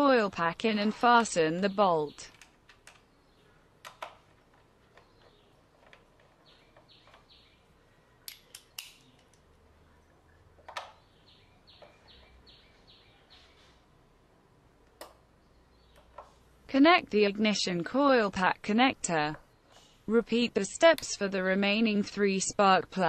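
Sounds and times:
metal tool clicks: 8.3 - 9.4.

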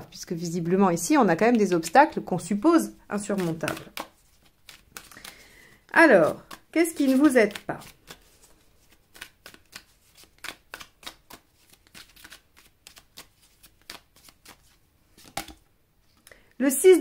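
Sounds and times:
cards flicked and tapped: 3.2 - 5.4, 6.2 - 15.6.

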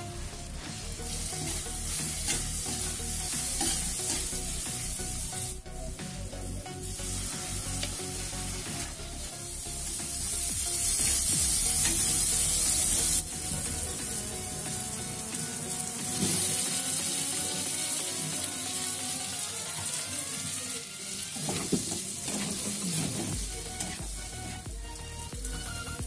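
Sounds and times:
oil and spices sizzling: 0.0 - 26.0
metal spatula scraping a pan: 0.4 - 4.9, 21.2 - 24.6.

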